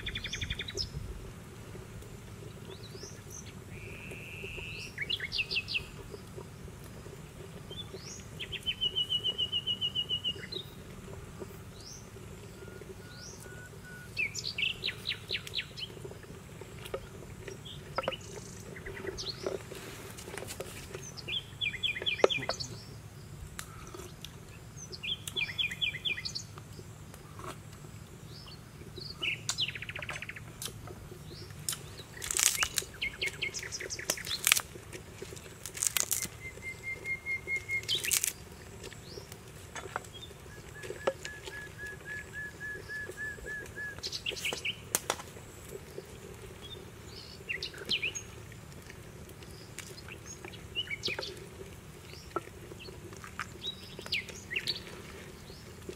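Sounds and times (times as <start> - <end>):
wild birds chirping: 0.0 - 55.9
rapid bird trills: 35.7 - 38.4.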